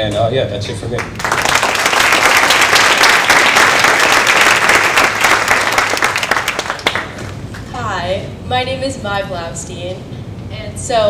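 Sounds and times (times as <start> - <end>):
audience applauding: 0.9 - 7.3.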